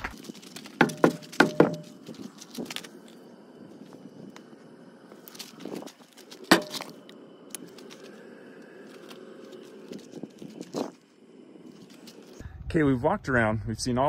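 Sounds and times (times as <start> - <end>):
footsteps on gravel: 0.0 - 3.2, 5.1 - 8.2
handling rustle: 0.0 - 12.4.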